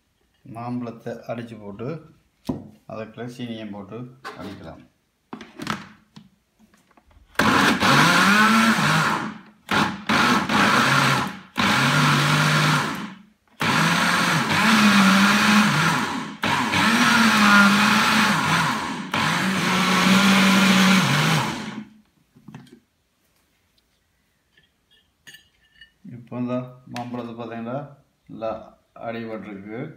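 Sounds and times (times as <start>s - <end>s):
blender motor whining: 7.4s - 21.9s.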